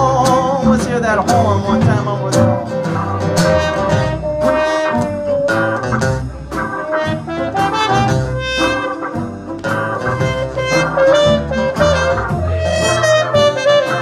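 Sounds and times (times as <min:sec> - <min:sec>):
guitar and bass accompaniment: 0:00.0 - 0:14.0
muted trumpet solo: 0:03.4 - 0:05.9, 0:06.5 - 0:09.2, 0:09.9 - 0:14.0.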